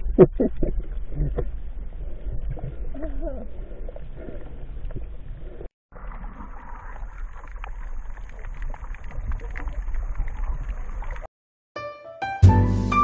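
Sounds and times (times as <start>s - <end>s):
muffled underwater rumble: 0.0s - 5.7s.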